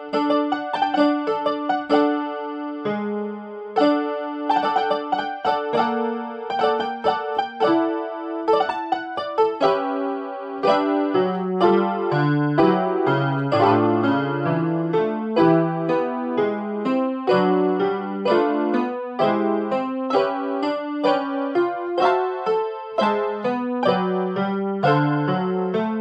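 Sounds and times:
electronic keyboard piano melody: 0:00.0 - 0:26.0.

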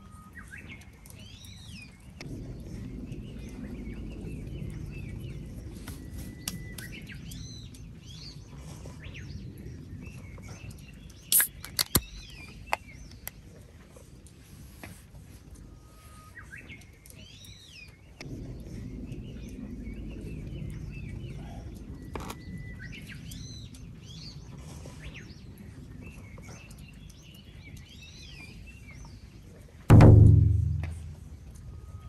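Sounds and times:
wild birds singing: 0:00.0 - 0:32.0
low rumble: 0:02.2 - 0:10.4, 0:18.2 - 0:24.6, 0:29.9 - 0:32.0
sharp clicks or knocks: 0:11.3 - 0:12.1.

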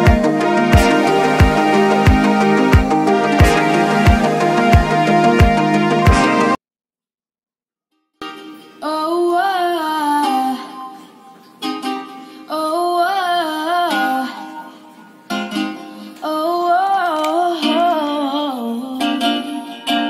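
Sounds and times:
music from portable speaker: 0:00.0 - 0:06.6, 0:13.7 - 0:20.0.

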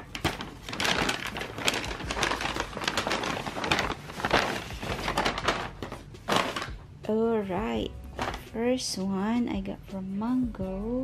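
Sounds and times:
paper bag rustling: 0:00.0 - 0:06.9, 0:08.2 - 0:08.6.

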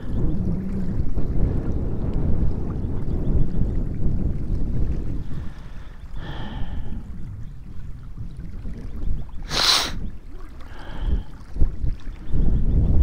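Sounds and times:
wind buffeting microphone: 0:00.0 - 0:13.0
short sharp hiss: 0:09.5 - 0:10.0.

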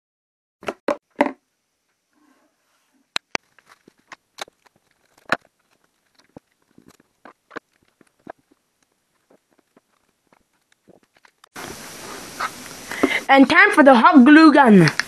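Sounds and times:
plastic wrap crinkling: 0:03.4 - 0:13.2.

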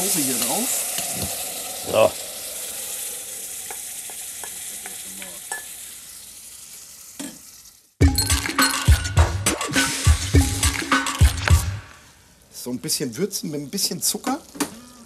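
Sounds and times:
sauce sizzling in oil: 0:00.0 - 0:08.9, 0:09.7 - 0:15.0
music with a beat: 0:08.0 - 0:11.9.

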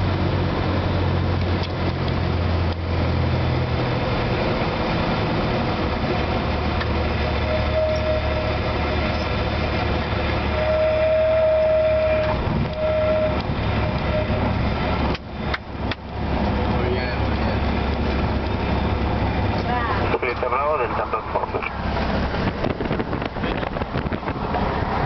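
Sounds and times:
airplane engine droning: 0:00.0 - 0:25.0
stall warning horn: 0:07.4 - 0:09.2, 0:10.4 - 0:14.6.

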